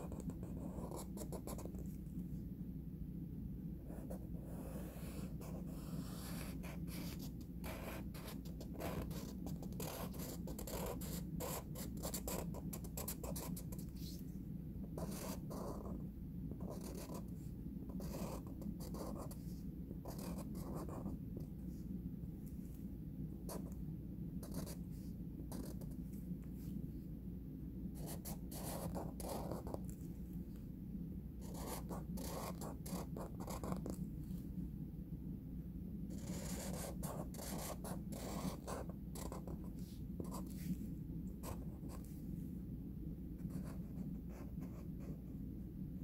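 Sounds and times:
marker scratching on paper: 0.0 - 1.9, 3.9 - 14.2, 15.0 - 16.0, 16.6 - 21.2, 24.4 - 26.0, 28.0 - 30.0, 31.4 - 34.0, 36.1 - 40.8, 41.4 - 42.1
steady low hum: 0.0 - 46.0.

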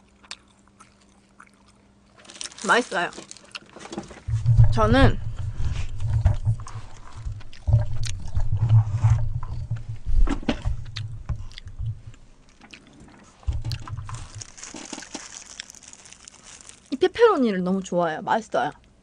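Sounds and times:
plastic glove crinkling: 2.1 - 17.9
microphone handling bumps: 4.0 - 12.4, 13.4 - 15.3.

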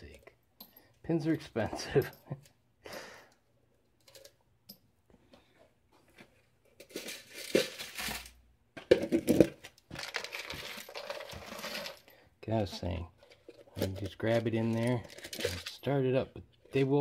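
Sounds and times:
rustling with light metal clicks: 13.1 - 17.0.

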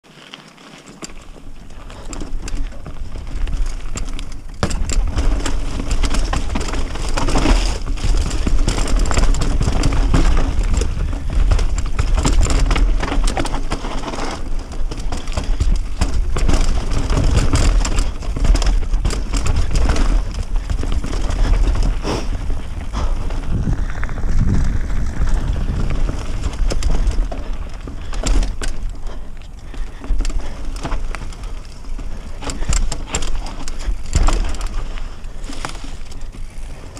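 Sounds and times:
tyres crunching over stones: 0.0 - 36.9
bike rattling and knocking: 0.1 - 36.9
wind rumbling on microphone: 1.2 - 36.9.

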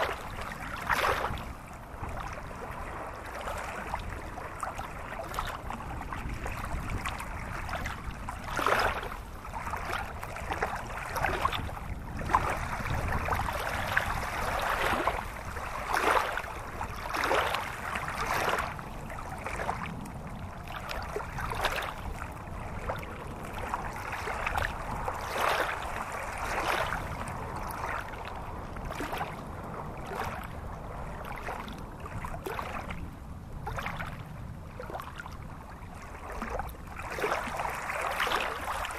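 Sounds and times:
stream splashing over stones: 12.3 - 19.8, 37.0 - 38.9.

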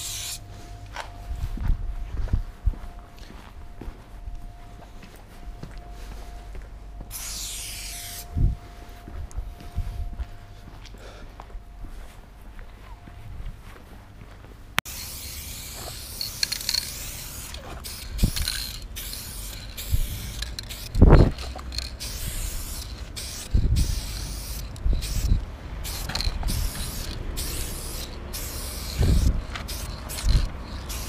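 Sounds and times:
spray paint can hissing: 0.0 - 0.4, 7.1 - 8.3, 14.9 - 31.0.

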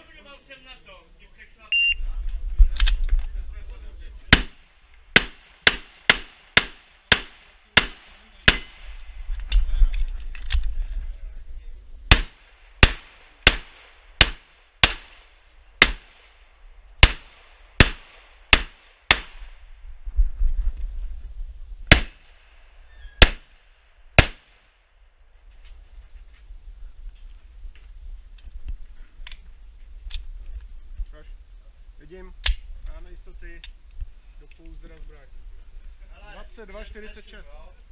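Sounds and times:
pistol shots: 4.3 - 9.0, 12.1 - 16.3, 17.0 - 19.5, 21.9 - 22.4, 23.2 - 23.6, 24.2 - 24.6.

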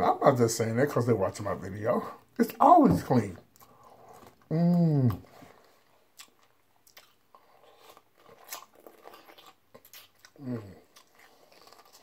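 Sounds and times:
chewing crunches: 5.2 - 12.0.

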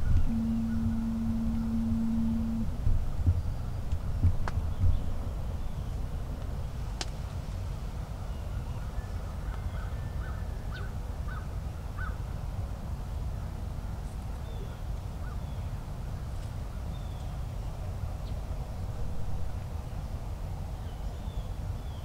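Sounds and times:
bird calling: 0.0 - 2.7
low steady rumble: 0.0 - 22.0.

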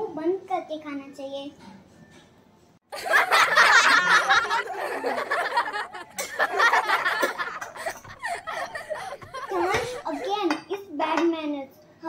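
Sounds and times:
children giggling: 2.9 - 10.4.

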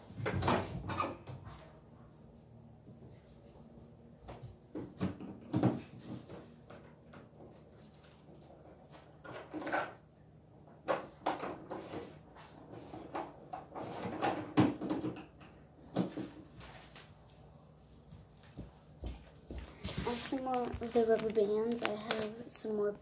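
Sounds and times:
knocks and clatter of rummaging: 10.8 - 16.9.

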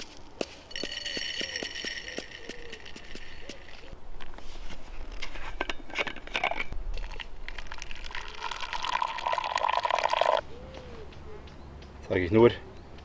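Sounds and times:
handling clicks and rattles: 0.0 - 4.0
hot water pouring into a mug: 7.7 - 10.4.

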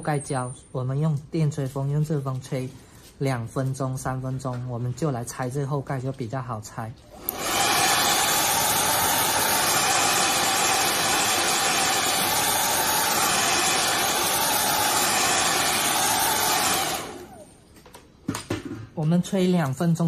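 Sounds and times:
hair dryer blowing: 7.1 - 17.7.

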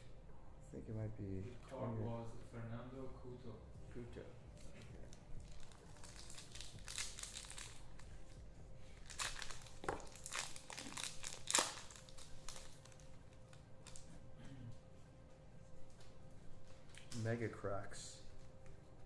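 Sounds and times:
card wrappers crinkling and tearing: 4.6 - 14.2.

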